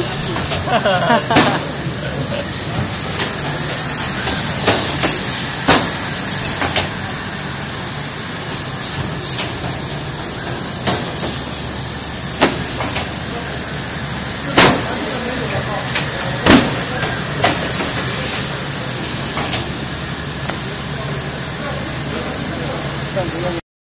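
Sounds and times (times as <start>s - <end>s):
machine hum and whirr: 0.0s - 23.6s
sharp mechanical clacks: 2.4s - 13.7s, 14.4s - 21.0s.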